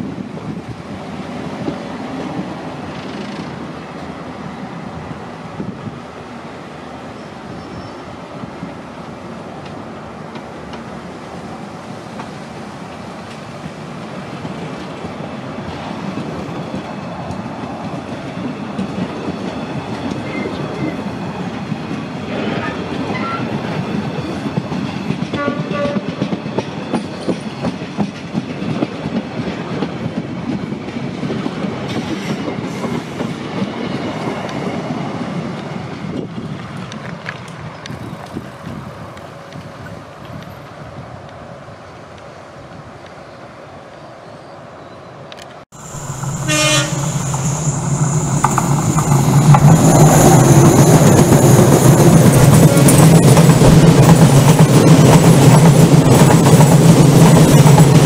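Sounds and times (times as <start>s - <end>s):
train wheels clattering over rail joints: 23.6s - 34.8s, 46.0s - 58.0s
brief high tones: 45.8s - 49.0s.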